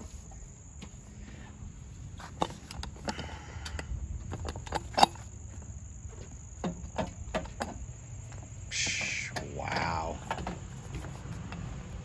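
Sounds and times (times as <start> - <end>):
metal bracket clicks and knocks: 4.3 - 5.4, 6.6 - 8.4, 9.3 - 11.7.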